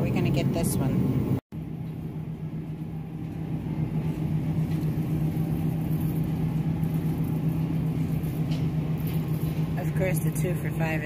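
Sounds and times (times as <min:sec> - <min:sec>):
refrigeration and ventilation hum: 0:00.0 - 0:11.0.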